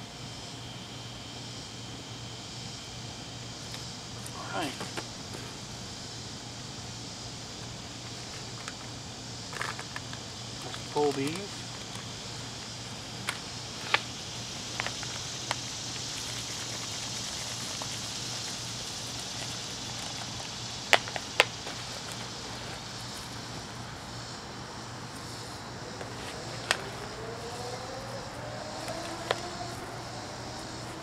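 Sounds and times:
steady background hiss: 0:00.0 - 0:31.0
low drone rising in pitch: 0:25.6 - 0:31.0.

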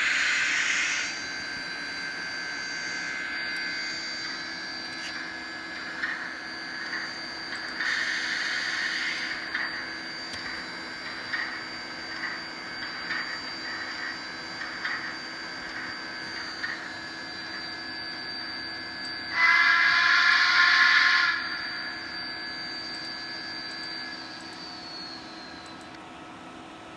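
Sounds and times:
model train steam whistle: 0:19.3 - 0:21.6
standing steam engine sounds: 0:19.3 - 0:21.6.

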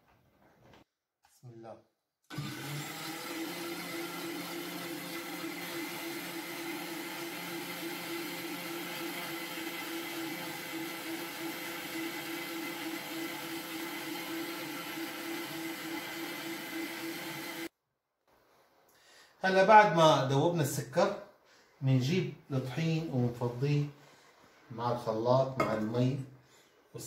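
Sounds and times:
blender motor whirring: 0:02.3 - 0:17.7.

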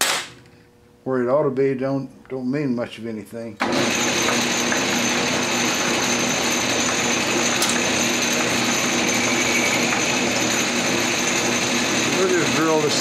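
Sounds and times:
metal lathe humming and whining: 0:03.6 - 0:13.0.

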